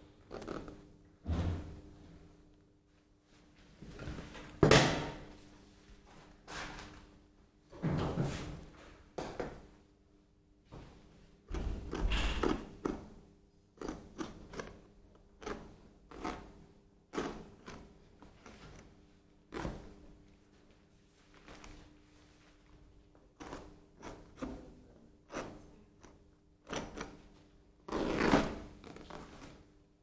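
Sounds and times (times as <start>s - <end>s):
knocks and scrapes on plaster cast: 11.5s - 13.2s, 13.8s - 20.1s, 23.3s - 27.4s.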